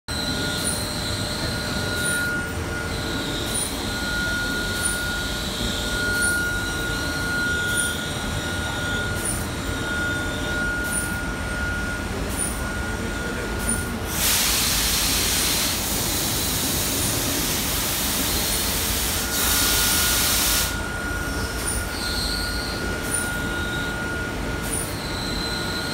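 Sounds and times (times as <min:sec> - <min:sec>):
wavering squeal: 0:00.1 - 0:14.0, 0:19.2 - 0:25.9
steady high tone: 0:00.1 - 0:14.2, 0:15.1 - 0:25.9
conveyor machinery din: 0:00.1 - 0:25.9.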